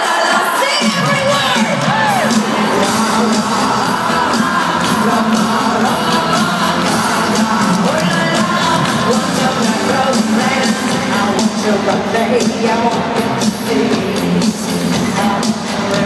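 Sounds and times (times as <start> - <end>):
crowd whooping and cheering: 0.0 - 10.9
live pop music over pa: 0.0 - 16.0.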